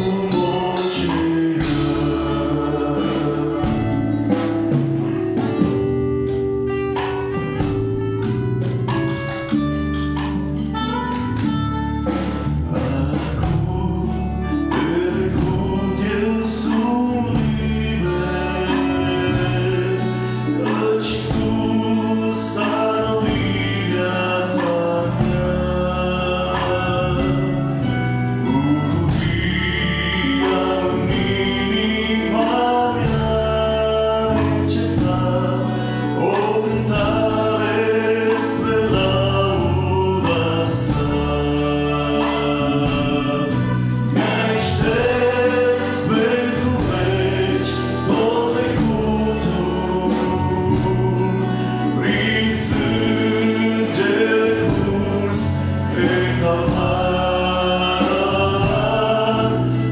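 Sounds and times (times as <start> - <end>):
man singing into a microphone: 0.0 - 5.7, 12.4 - 59.9
live band playing: 0.0 - 59.9.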